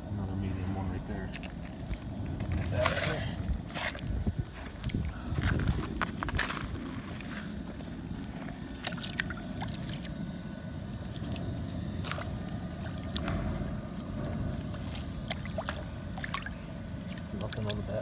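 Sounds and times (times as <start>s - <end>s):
river water sloshing and dripping: 6.5s - 18.0s.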